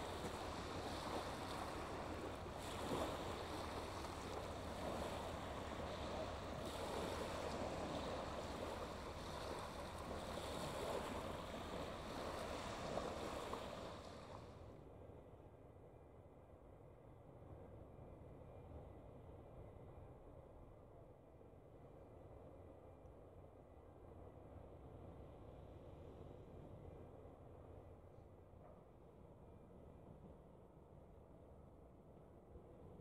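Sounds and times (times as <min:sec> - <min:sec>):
waves washing onto shingle: 0:00.0 - 0:14.5.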